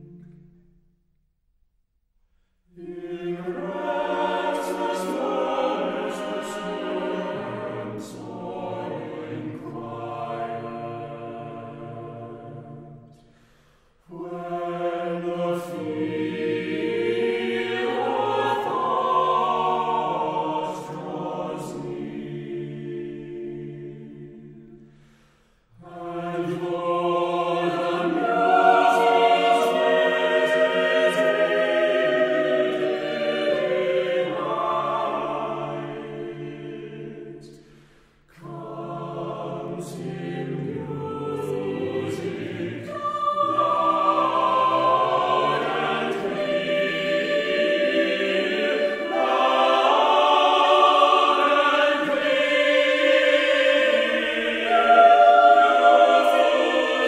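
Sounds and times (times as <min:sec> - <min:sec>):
choir singing in harmony: 0:00.0 - 0:00.8, 0:02.7 - 0:57.0.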